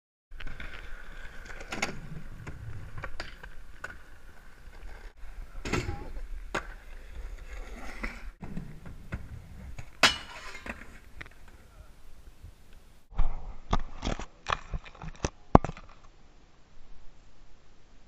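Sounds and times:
skateboard wheels rolling on concrete: 0.3s - 13.1s.

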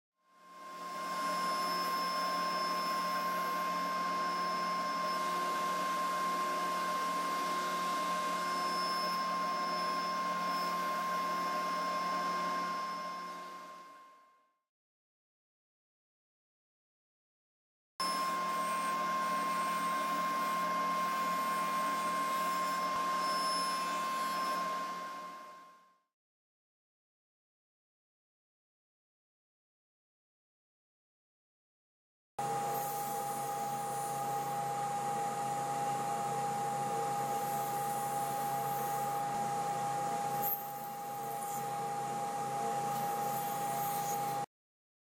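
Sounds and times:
table saw running: 18.0s - 25.4s, 32.4s - 44.5s.

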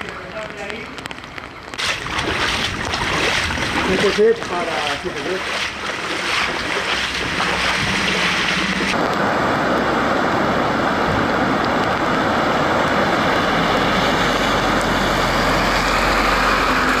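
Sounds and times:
water rushing from tyres: 0.0s - 17.0s
footsteps splashing through water: 0.2s - 9.0s.

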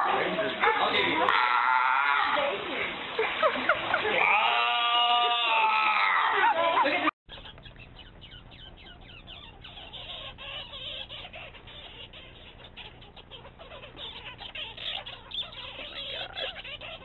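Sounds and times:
faint low hum: 7.3s - 17.0s
squirrel chattering and squeaking: 7.3s - 17.0s.

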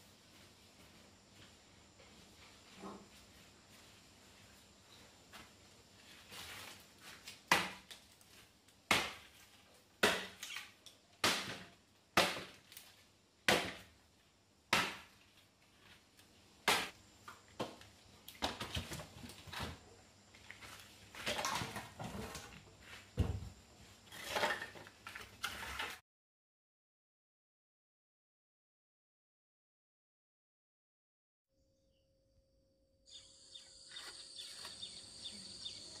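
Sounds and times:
machete chopping wooden branch: 7.5s - 8.0s, 8.9s - 9.3s, 10.0s - 10.6s, 11.2s - 12.7s, 13.5s - 13.9s, 14.7s - 15.1s, 16.6s - 17.0s.

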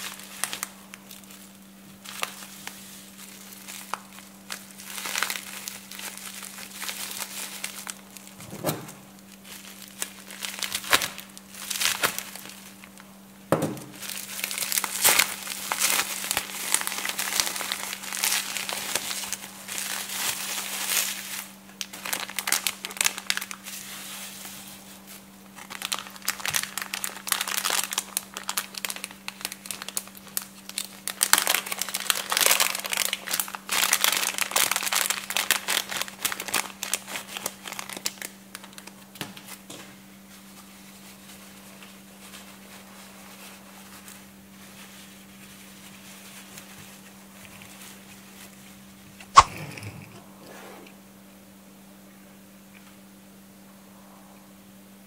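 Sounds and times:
packaging crinkling and rustling: 0.0s - 13.1s, 13.7s - 50.2s
faint low hum: 35.2s - 55.0s.

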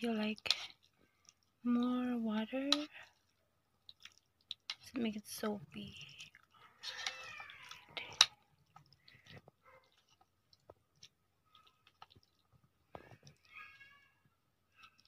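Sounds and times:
chewing: 0.0s - 5.0s, 5.6s - 13.9s, 14.7s - 15.0s.

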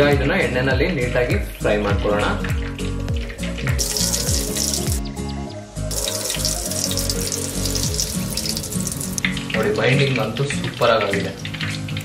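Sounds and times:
background music with bass line: 0.0s - 10.8s
food deep-frying in hot oil: 1.7s - 5.1s, 5.9s - 12.0s.

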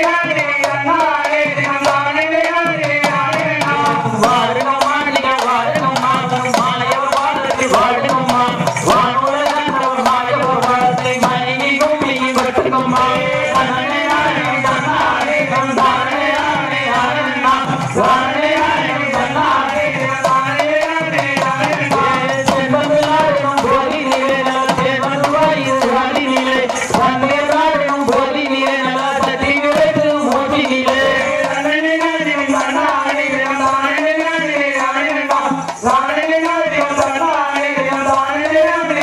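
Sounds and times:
driving drum beat: 0.0s - 39.0s
folk dance melody: 4.6s - 28.4s.

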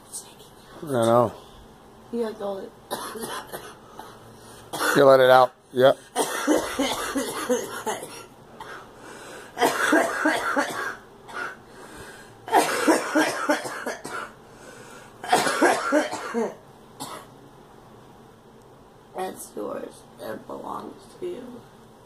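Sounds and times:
woman coughing: 2.9s - 5.1s, 6.2s - 8.9s, 9.6s - 11.6s, 12.5s - 14.4s, 15.2s - 17.3s.

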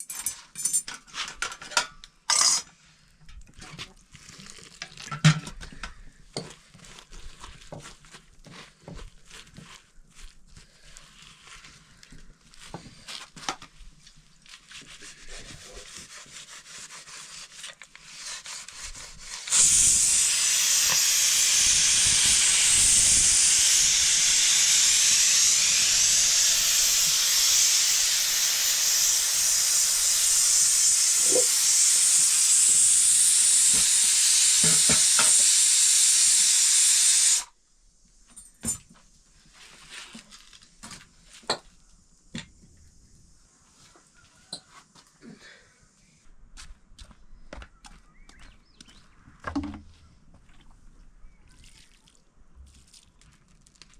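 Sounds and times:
loud cooking hiss: 19.4s - 37.5s.

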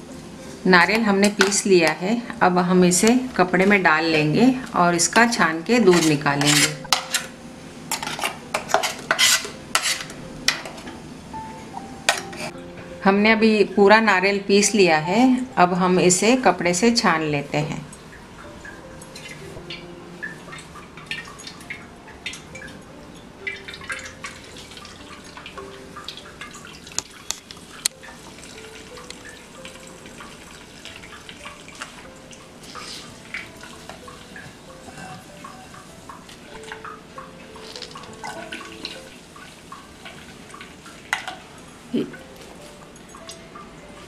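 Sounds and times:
liquid trickling and dripping: 17.6s - 44.0s.

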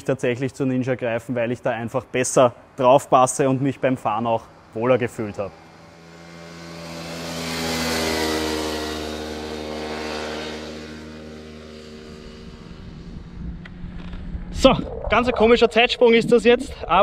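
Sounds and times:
motorcycle riding past: 4.5s - 14.5s.

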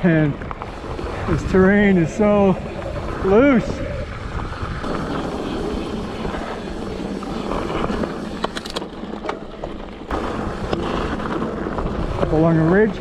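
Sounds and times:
wind on microphone: 0.0s - 9.0s
bike rattling over stones: 0.0s - 13.0s
bike tyres rolling on dirt: 0.0s - 13.0s.

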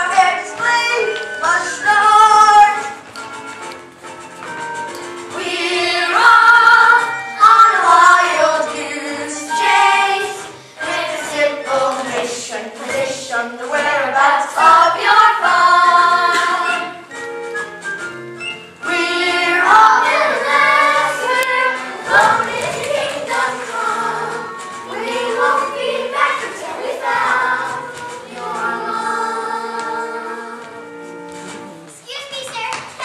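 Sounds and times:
children singing in chorus: 5.4s - 17.0s, 18.8s - 30.7s.

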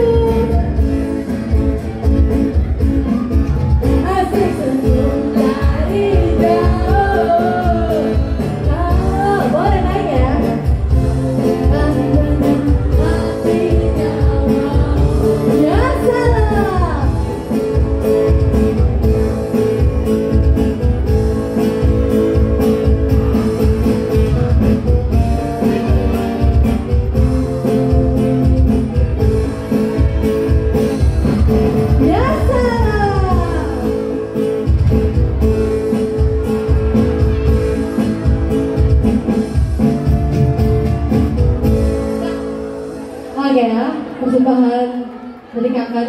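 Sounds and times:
guitar: 0.0s - 46.0s
person singing: 3.8s - 10.5s, 11.4s - 17.4s.

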